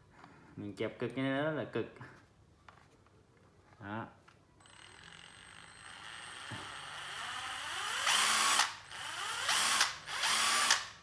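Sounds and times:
impact driver motor whining: 4.6 - 11.0.

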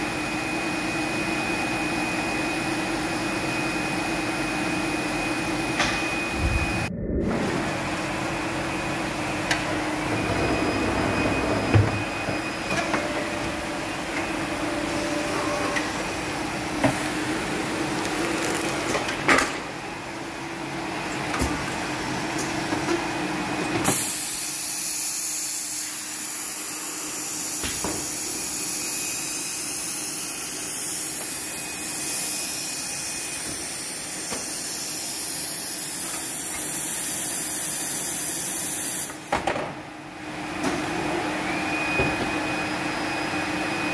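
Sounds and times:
machine hum: 4.8 - 21.2.

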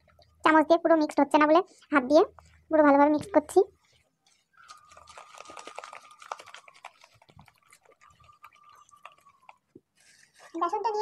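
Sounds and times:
hand squishing wet batter: 2.3 - 11.0.

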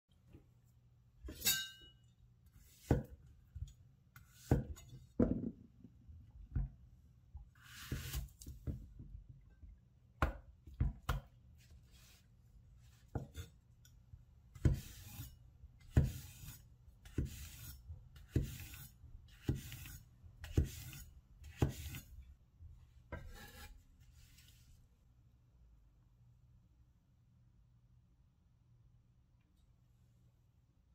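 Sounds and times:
knife slicing through zucchini: 7.6 - 8.8, 14.6 - 22.1, 23.1 - 23.8.

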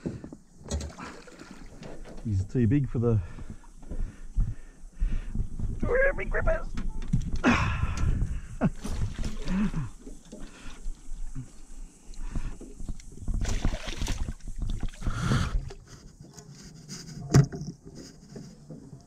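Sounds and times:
fish splashing at surface: 13.4 - 15.1.

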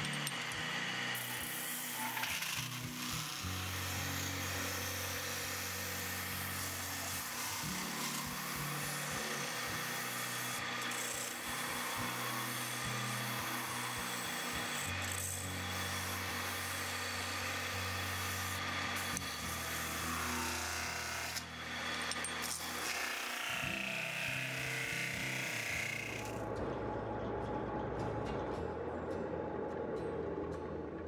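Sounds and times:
metal spinning tool scraping: 5.2 - 20.0, 21.4 - 24.4.

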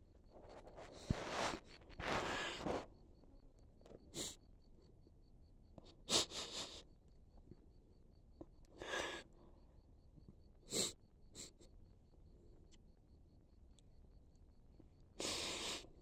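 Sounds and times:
woman crying and sniffling: 6.0 - 6.9.

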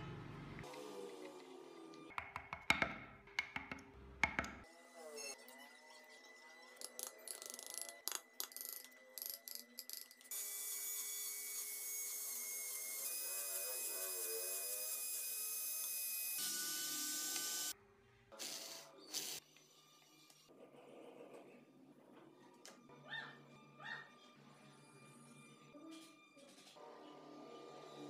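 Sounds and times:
rotary carving tool whining: 10.3 - 17.7
carving gouge cutting wood: 10.4 - 17.7.

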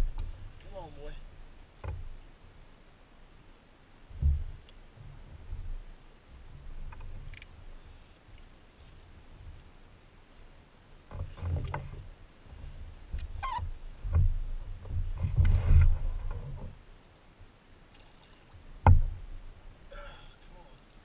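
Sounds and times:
knocks on boat hull: 18.8 - 19.2.

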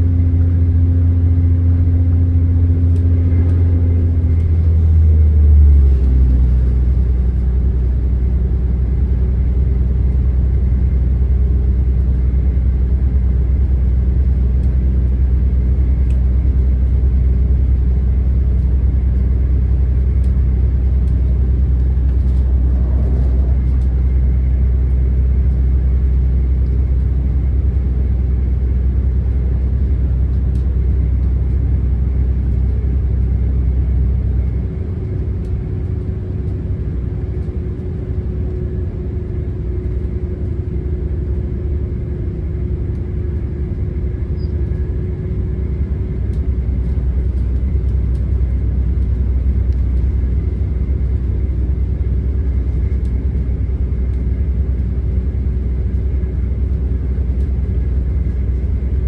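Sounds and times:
diesel train engine drone: 0.0 - 59.0
steady hum: 0.0 - 59.0
train running noise: 20.8 - 26.8.

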